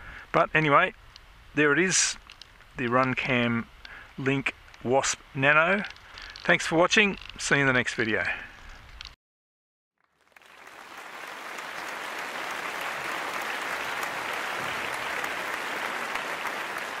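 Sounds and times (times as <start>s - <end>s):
many hands clapping: 10.1s - 17.0s.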